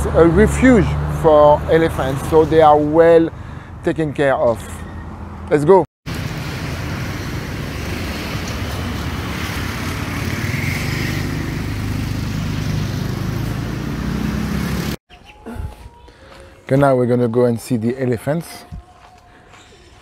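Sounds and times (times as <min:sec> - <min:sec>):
road noise: 0:00.0 - 0:15.0
vehicle engine running: 0:06.1 - 0:15.0.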